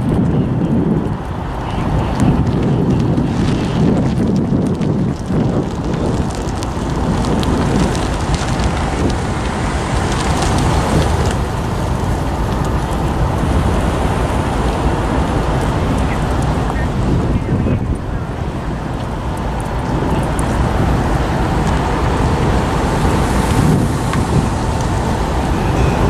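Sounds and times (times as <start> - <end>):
crackling: 0.0 - 26.0
diesel locomotive engine running: 0.0 - 26.0
wind buffeting microphone: 0.0 - 26.0.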